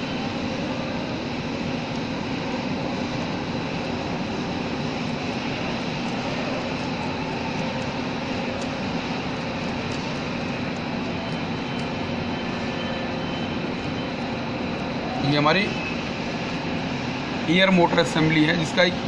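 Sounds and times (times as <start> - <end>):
machinery drone with high whine: 0.0 - 19.0.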